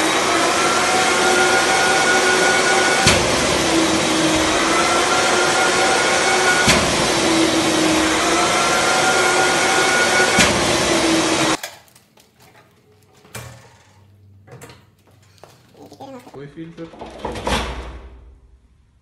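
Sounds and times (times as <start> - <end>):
dust extractor motor whine: 0.0 - 11.6.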